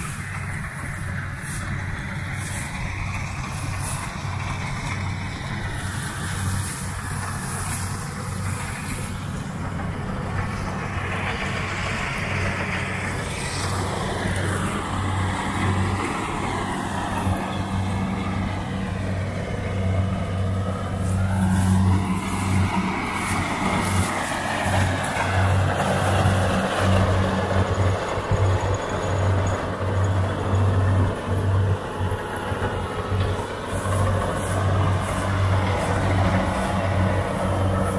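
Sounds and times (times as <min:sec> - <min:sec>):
combine harvester engine drone: 0:00.0 - 0:37.9
machinery whines: 0:00.0 - 0:37.9.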